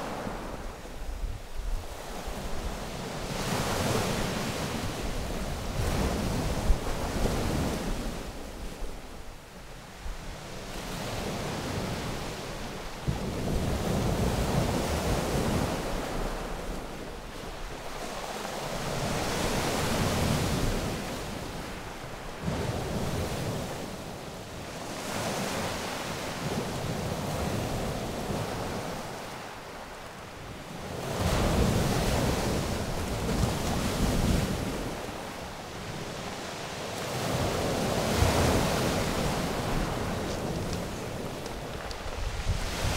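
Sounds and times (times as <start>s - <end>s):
wind rumbling on microphone: 0.0s - 42.9s
surf breaking on pebble beach: 37.1s - 42.9s.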